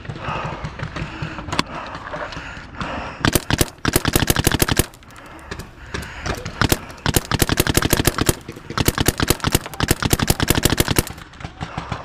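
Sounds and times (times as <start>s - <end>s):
paintball marker firing: 3.2s - 11.5s.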